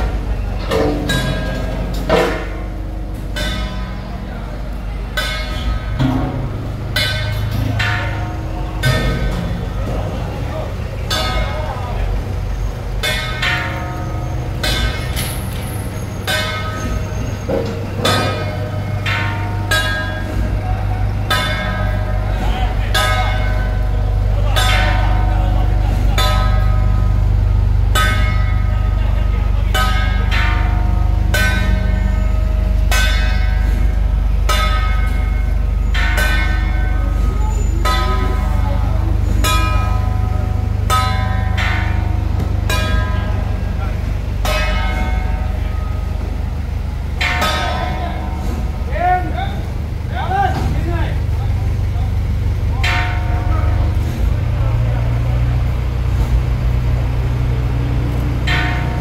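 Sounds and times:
metal gong ringing: 0:00.0 - 0:49.7
metal bell ringing: 0:34.5 - 0:43.6.

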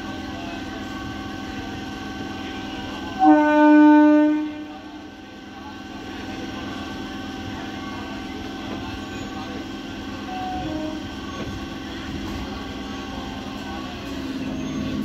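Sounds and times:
electrical hum of train: 0:00.0 - 0:15.0
train horn blast: 0:03.2 - 0:04.8, 0:10.3 - 0:11.1.

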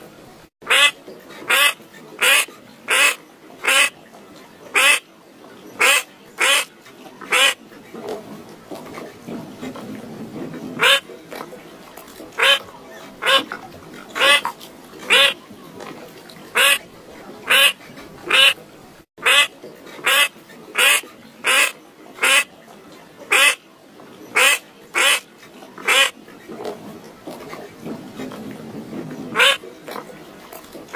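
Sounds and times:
bird raspy calls: 0:00.7 - 0:04.0, 0:12.4 - 0:12.6, 0:13.2 - 0:14.5, 0:15.1 - 0:15.4, 0:16.6 - 0:16.8, 0:17.5 - 0:18.6, 0:19.2 - 0:22.5, 0:25.8 - 0:26.1, 0:29.4 - 0:29.6.

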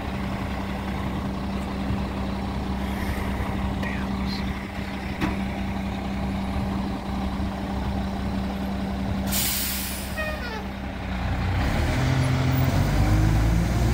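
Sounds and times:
truck engine idling: 0:00.0 - 0:13.9
air brakes hissing: 0:09.3 - 0:10.6.

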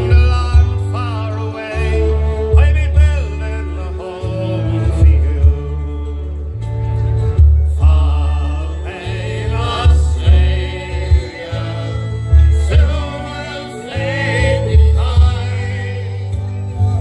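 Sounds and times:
folk band playing through a pa: 0:00.0 - 0:17.0
heavy low bass note: 0:00.0 - 0:17.0
men singing together: 0:07.8 - 0:17.0.

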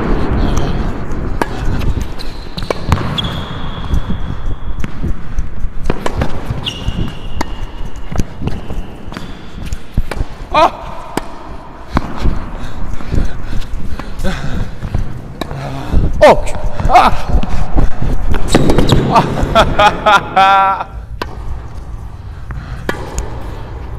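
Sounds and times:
ball bouncing: 0:00.4 - 0:19.9, 0:21.1 - 0:23.9
racket hitting tennis ball: 0:01.1 - 0:12.6, 0:16.4 - 0:19.6, 0:21.1 - 0:21.8, 0:22.5 - 0:23.9
shoe squeaks on court: 0:02.0 - 0:04.9, 0:06.0 - 0:09.3.

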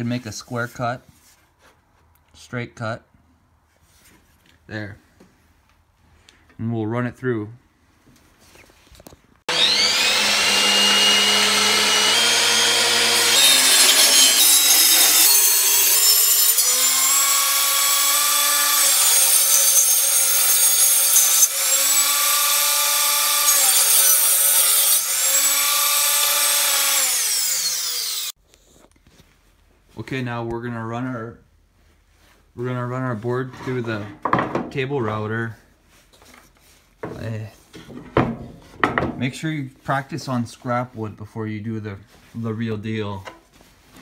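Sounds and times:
table saw cutting wood: 0:09.5 - 0:28.4.

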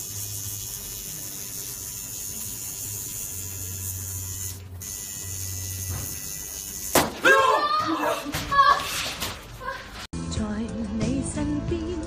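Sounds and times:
tattoo machine buzzing: 0:00.0 - 0:07.2.

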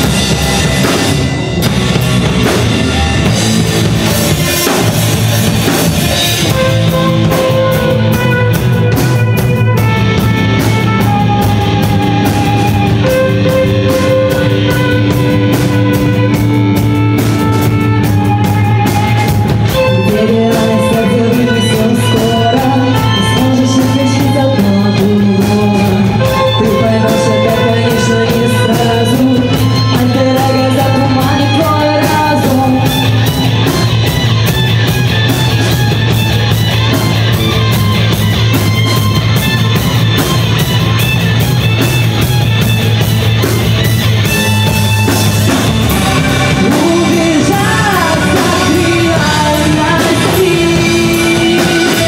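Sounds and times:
live rock band playing: 0:00.0 - 0:52.0
violin: 0:00.0 - 0:52.0
woman singing: 0:19.7 - 0:33.2, 0:46.1 - 0:52.0.

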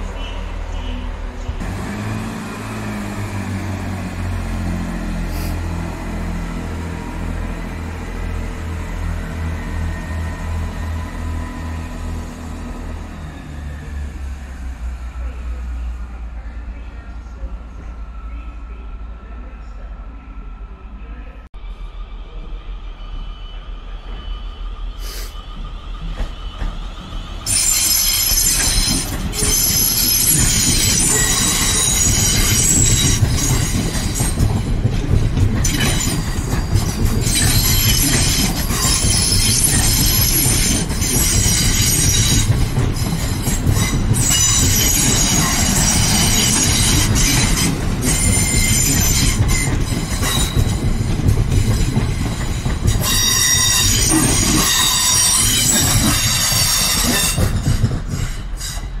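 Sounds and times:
train wheels rumbling on rails: 0:00.0 - 0:18.1, 0:24.0 - 0:59.0
high-pitched train squealing: 0:21.6 - 0:34.9, 0:35.6 - 0:59.0.

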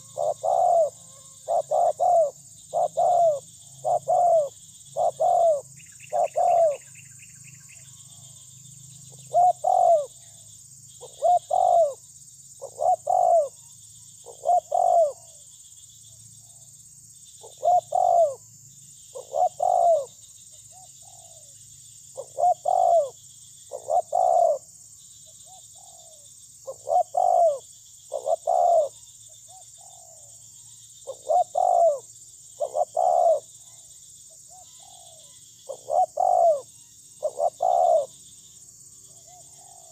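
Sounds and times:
dove cooing: 0:00.0 - 0:06.9, 0:09.1 - 0:10.3, 0:11.0 - 0:12.0, 0:12.6 - 0:13.6, 0:14.2 - 0:15.4, 0:17.4 - 0:18.4, 0:19.1 - 0:21.5, 0:22.2 - 0:24.7, 0:25.5 - 0:30.3, 0:31.0 - 0:33.8, 0:34.5 - 0:38.2, 0:39.2 - 0:39.9.

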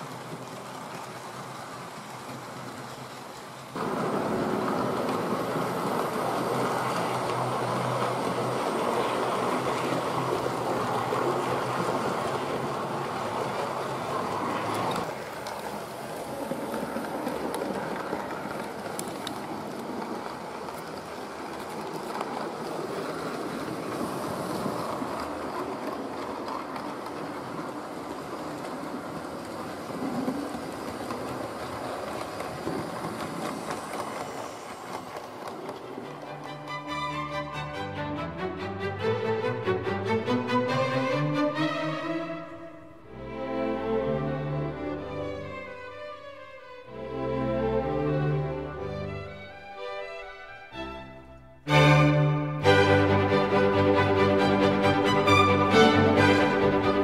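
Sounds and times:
model train motor whirring: 0:00.0 - 0:37.6.

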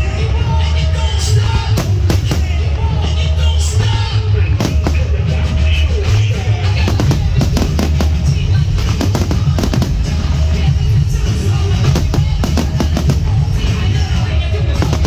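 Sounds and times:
loud music with drum beat: 0:00.0 - 0:15.0
fireworks bangs: 0:01.7 - 0:02.8, 0:04.5 - 0:15.0.

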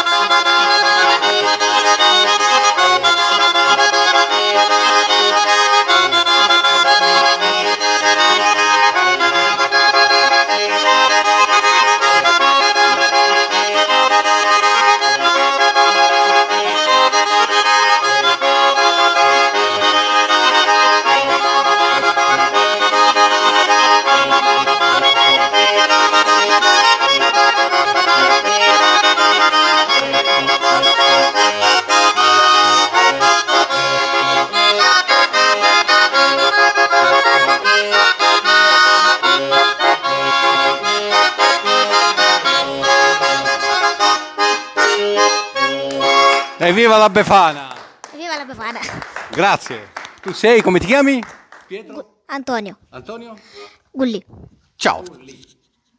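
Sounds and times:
button accordion playing a lively tune: 0:00.0 - 0:51.6.

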